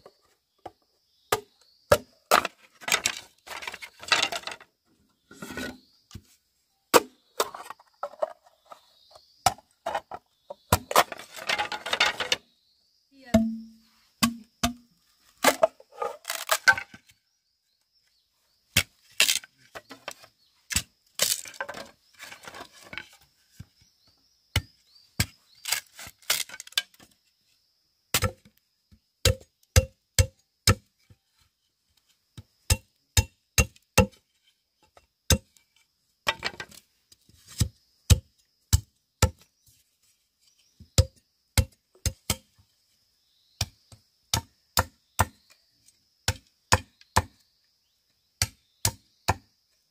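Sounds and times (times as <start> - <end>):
bamboo rustling and scraping: 2.2 - 12.5, 15.0 - 17.2, 18.3 - 23.9, 25.2 - 27.6, 34.0 - 38.5, 39.4 - 40.9.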